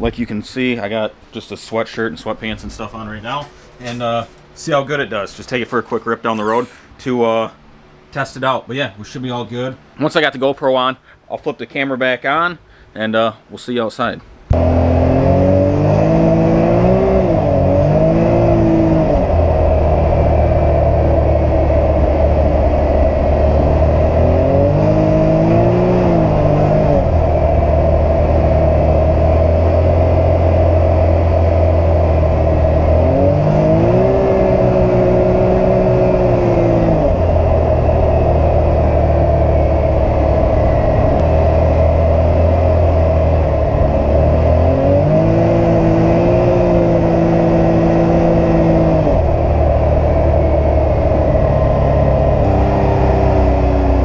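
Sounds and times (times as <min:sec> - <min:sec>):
engine revving inside cab: 0:14.5 - 0:54.0.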